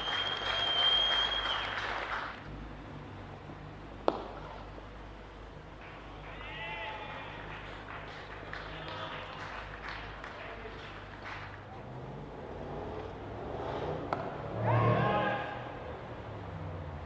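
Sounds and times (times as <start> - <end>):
players calling: 0.0 - 2.2, 5.8 - 11.8, 14.0 - 16.0
cricket bat hitting ball: 4.0 - 4.5, 14.1 - 14.4
fielders shouting: 5.8 - 11.0, 14.1 - 16.1.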